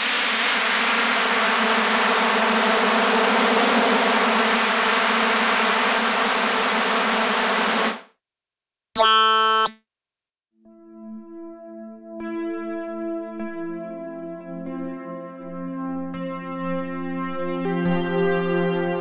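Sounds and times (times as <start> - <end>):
bright synth tone: 9.0 - 9.8.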